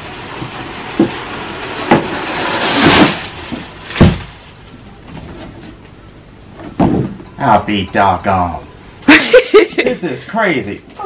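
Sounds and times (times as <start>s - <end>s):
tearing or rustling: 0.1s - 5.8s
heavy thump: 4.0s - 4.4s, 6.7s - 7.3s.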